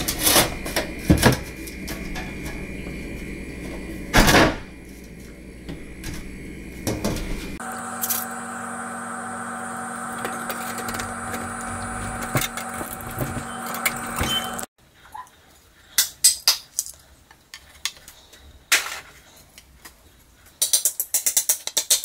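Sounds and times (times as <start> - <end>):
steady hum: 0.0 - 14.7.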